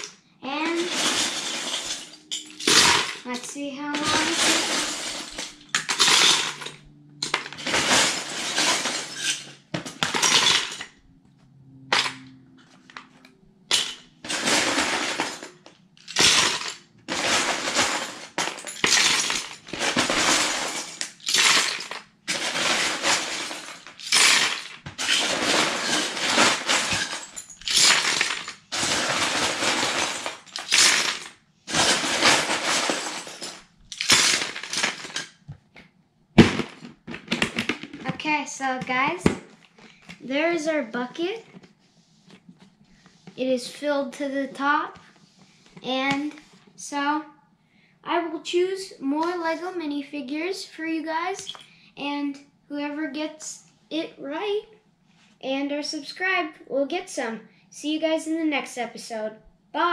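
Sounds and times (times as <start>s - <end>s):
plastic bricks poured into bucket: 0.7s - 3.4s, 4.0s - 6.7s, 7.3s - 10.9s, 13.7s - 35.3s.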